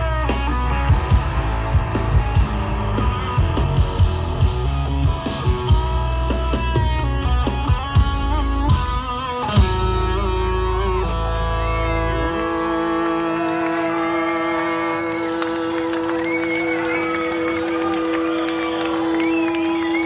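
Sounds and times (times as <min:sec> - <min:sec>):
drum kit: 0:00.0 - 0:13.2
bass guitar: 0:00.0 - 0:20.0
electric lead guitar: 0:00.0 - 0:20.0.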